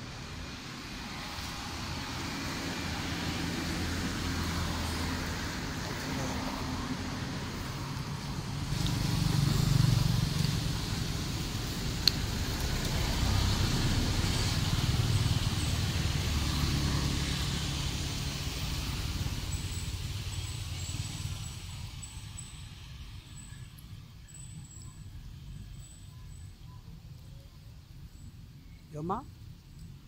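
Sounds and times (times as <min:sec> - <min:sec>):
vehicle passing by: 0:00.1 - 0:23.5.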